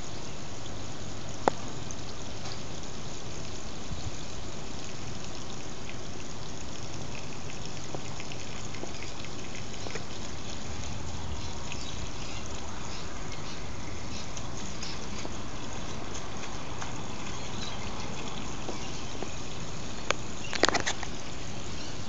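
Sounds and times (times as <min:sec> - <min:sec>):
water running from hose onto grass: 0:00.0 - 0:22.0
faint ticks: 0:20.0 - 0:21.2.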